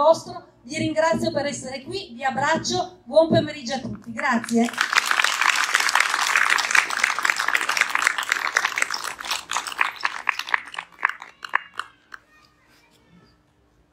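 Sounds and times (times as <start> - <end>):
audience applauding: 4.6 - 12.2.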